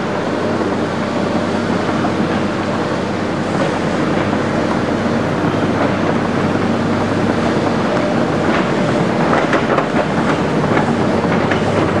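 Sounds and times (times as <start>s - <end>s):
excavator diesel engines running: 0.0s - 12.0s.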